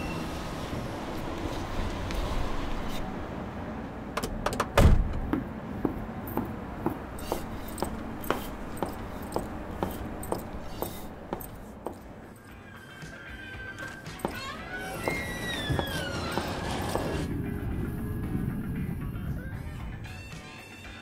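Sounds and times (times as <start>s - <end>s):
car door slamming: 4.2s - 5.3s
footsteps: 5.2s - 17.3s.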